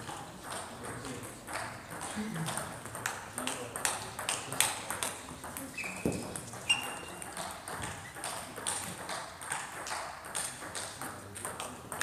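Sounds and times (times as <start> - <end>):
table tennis ball clicking: 0.0 - 12.0
high squeak: 5.8 - 7.2.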